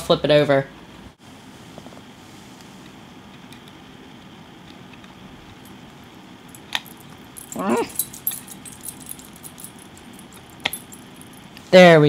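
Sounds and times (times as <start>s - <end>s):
small clicks and metallic rattling: 6.5s - 11.4s.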